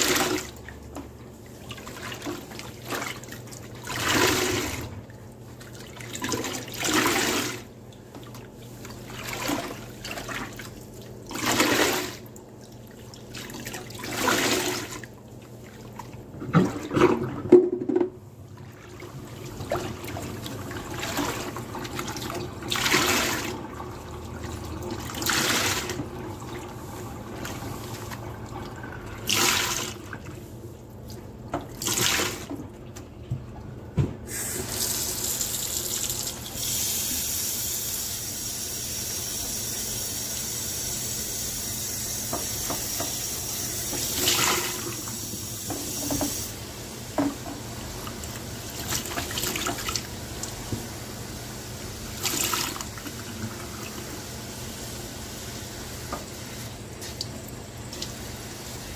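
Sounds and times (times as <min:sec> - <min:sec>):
soapy sponge squeezed with water gushing: 0:01.4 - 0:17.5, 0:18.6 - 0:32.5, 0:47.8 - 0:58.9.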